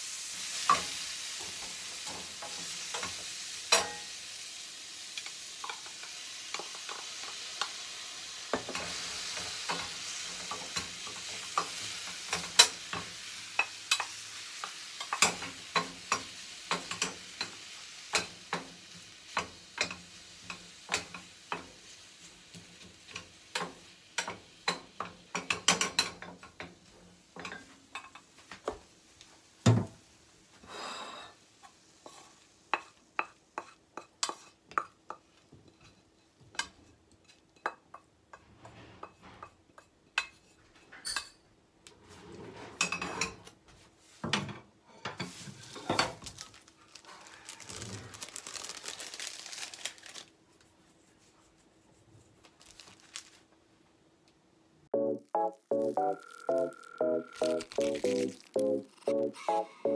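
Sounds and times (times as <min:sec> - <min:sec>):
faint sizzle: 0:00.0 - 0:54.0.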